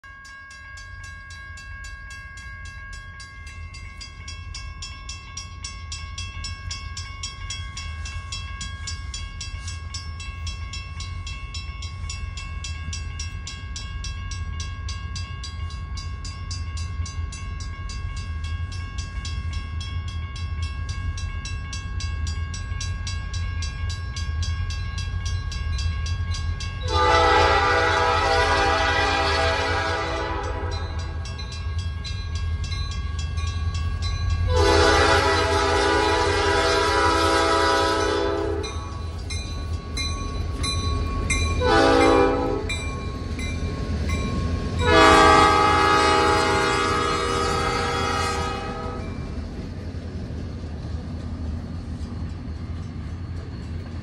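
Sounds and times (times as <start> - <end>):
crossing bell ringing: 0.0 - 54.0
train rumble: 0.1 - 54.0
locomotive air horn: 26.9 - 30.8, 34.5 - 38.7, 41.6 - 42.7, 44.8 - 49.0.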